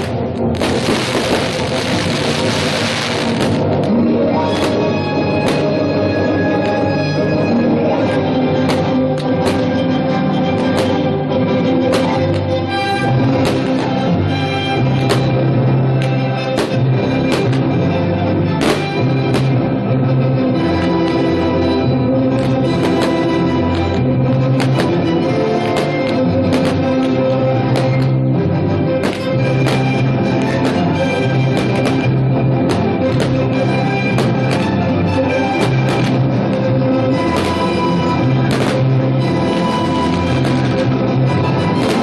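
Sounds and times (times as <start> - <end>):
loud music with drums: 0.0 - 6.8, 8.6 - 9.8, 10.6 - 11.1, 11.9 - 17.8, 18.5 - 19.7, 22.3 - 27.1, 29.0 - 42.0
bass line: 0.0 - 42.0.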